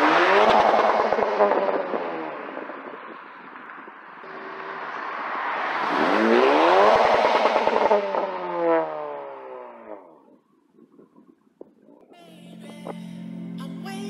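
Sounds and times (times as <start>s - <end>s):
car exhaust accelerating past: 0.0s - 10.4s.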